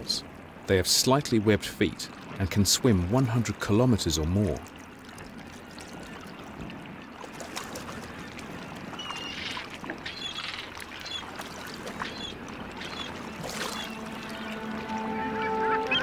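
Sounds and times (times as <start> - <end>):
water lapping against ice: 4.2 - 16.0
faint high bird calls: 9.0 - 11.3, 12.0 - 14.5.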